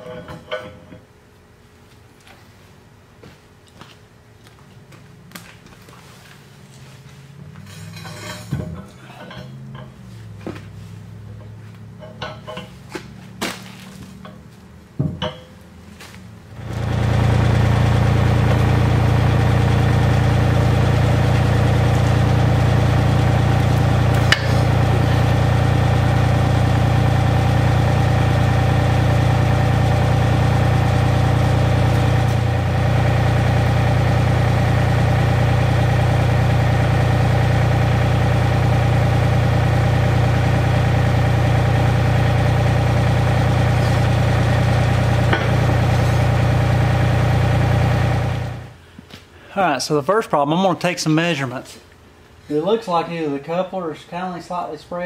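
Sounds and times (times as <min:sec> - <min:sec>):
machine motor humming: 0:16.5 - 0:48.8.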